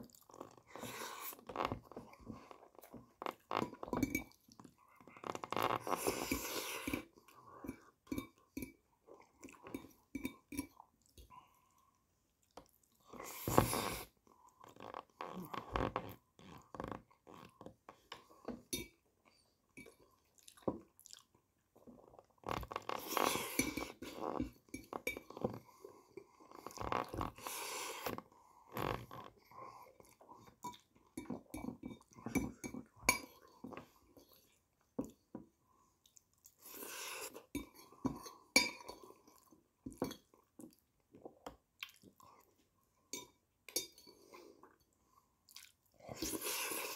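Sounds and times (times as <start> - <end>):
man chewing: 20.4 - 21.3.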